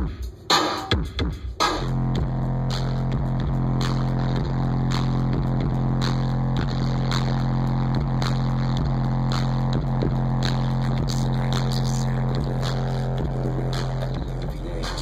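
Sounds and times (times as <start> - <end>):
loud music through car stereo: 0.0 - 15.0
low subwoofer bass note: 1.8 - 15.0.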